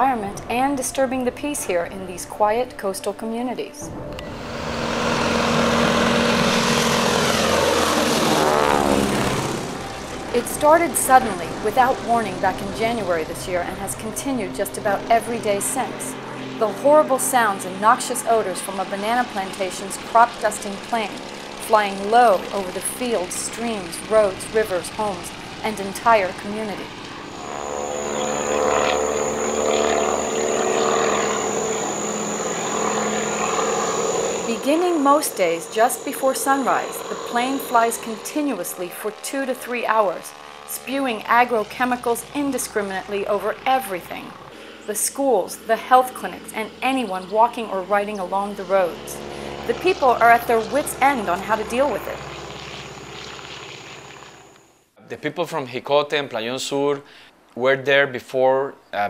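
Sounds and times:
propeller plane flying overhead: 0.0 - 54.8.

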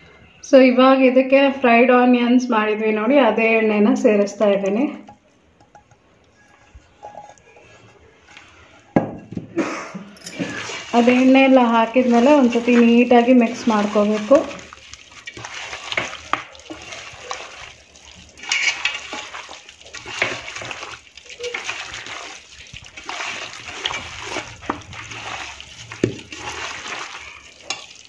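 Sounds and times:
hand squelching marinated chicken: 10.4 - 28.0.

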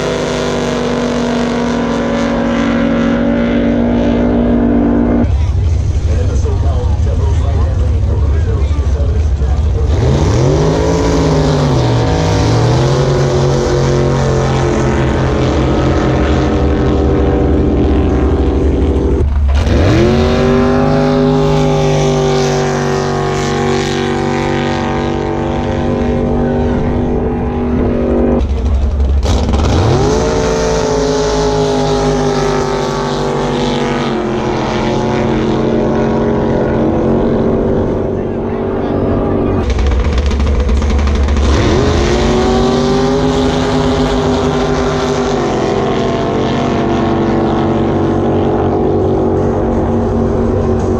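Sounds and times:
racing boat engines revving: 0.0 - 50.9.

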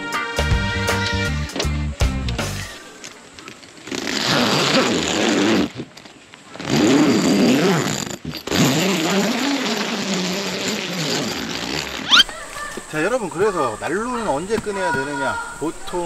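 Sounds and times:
tent zipper being pulled open: 3.8 - 12.3.

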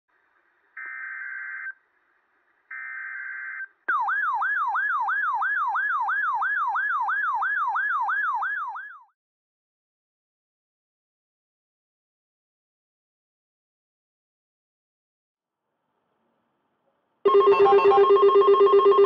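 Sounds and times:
weather radio long beeps: 17.3 - 19.0.

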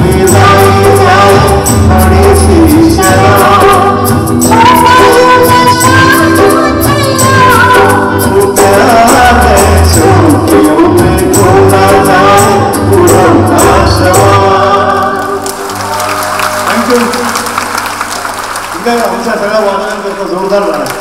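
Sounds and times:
man and woman singing: 0.0 - 15.5
live band with keyboard guitars drums: 0.0 - 18.7.

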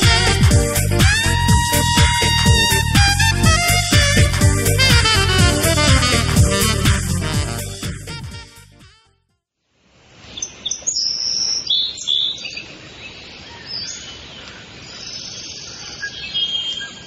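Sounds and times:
steady outdoor hiss: 0.0 - 8.6, 9.6 - 17.0
swing music: 0.0 - 9.1
birds chirping: 10.3 - 17.0.

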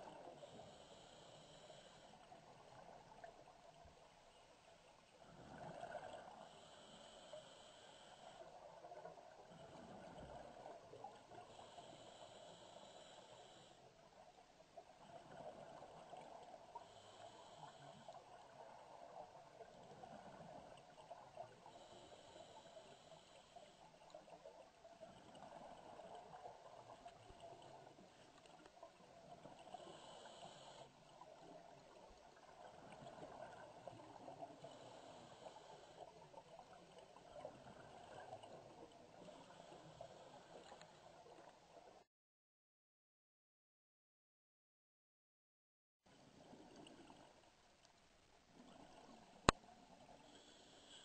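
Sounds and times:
water bubbling and gurgling: 4.8 - 6.9, 24.0 - 40.5.

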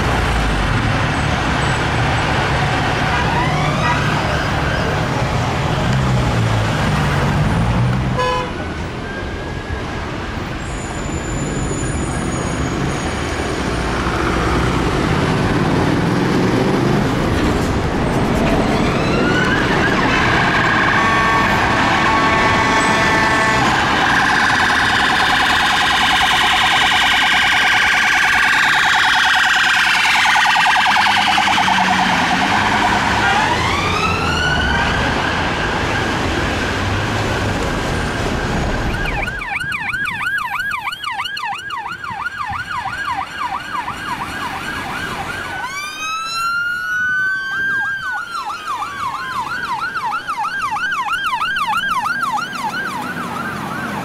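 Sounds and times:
traffic engines and tyres: 0.0 - 54.0
police siren wailing and yelping: 3.0 - 5.3, 18.5 - 36.8, 37.4 - 54.0.

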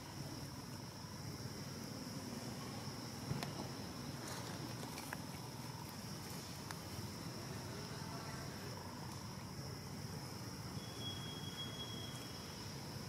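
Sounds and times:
high-pitched insect drone: 5.5 - 13.0.

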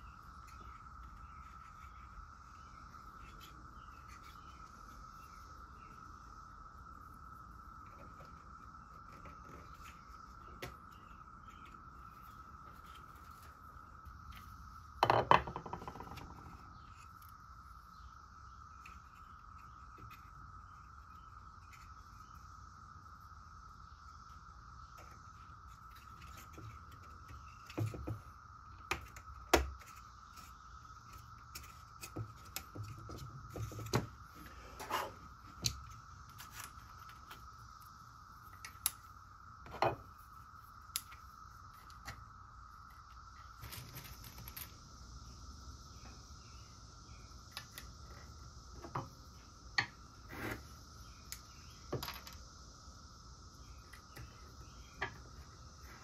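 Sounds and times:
wood pieces clicking and tapping: 14.3 - 17.1.

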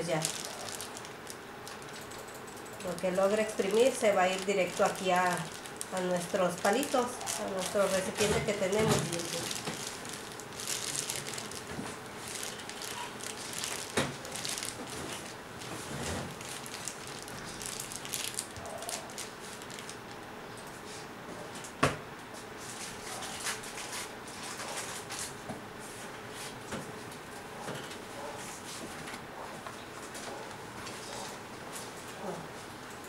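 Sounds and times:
plastic bag crinkling: 0.0 - 2.1, 2.8 - 20.2
small crackles: 0.0 - 2.2, 2.8 - 20.3.

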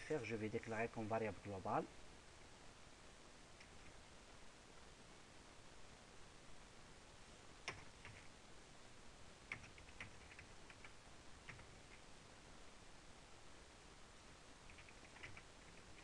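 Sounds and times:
faint keyboard keystrokes: 14.7 - 16.0.

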